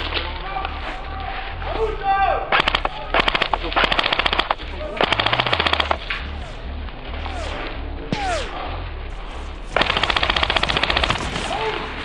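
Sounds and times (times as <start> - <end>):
airsoft gun firing bursts: 2.5 - 6.0, 9.7 - 11.8.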